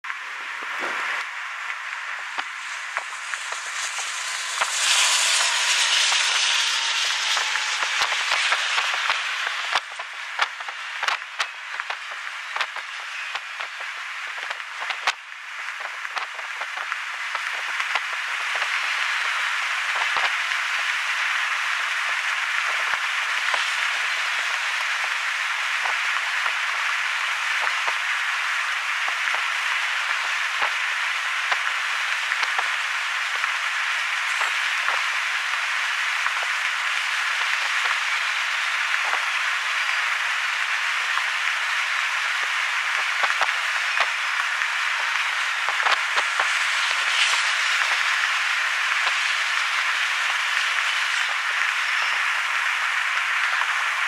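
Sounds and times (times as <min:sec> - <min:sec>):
steel wheels hissing on rails: 0:00.3 - 0:54.0
sharp clicks of train wheels: 0:02.2 - 0:54.0.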